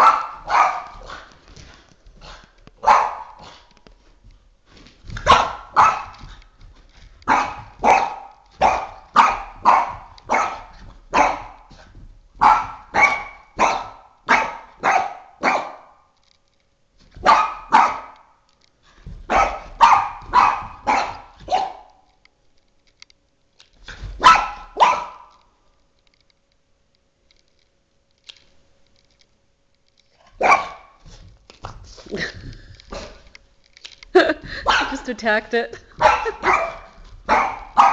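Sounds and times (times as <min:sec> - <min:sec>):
dog barking: 0:00.0 - 0:01.2, 0:02.8 - 0:03.6, 0:05.2 - 0:06.2, 0:07.3 - 0:11.7, 0:12.4 - 0:16.0, 0:17.2 - 0:18.2, 0:19.3 - 0:22.0, 0:24.2 - 0:25.3, 0:30.4 - 0:31.0, 0:34.6 - 0:35.0, 0:36.0 - 0:37.9.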